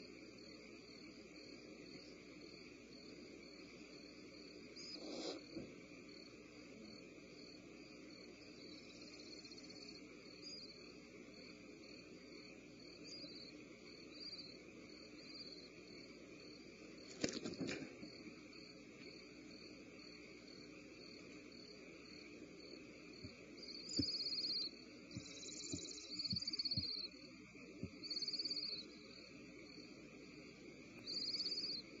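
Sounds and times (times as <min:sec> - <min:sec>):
steady electrical hum: 0:00.0 - 0:32.0
owl chicks hissing: 0:04.7 - 0:05.8.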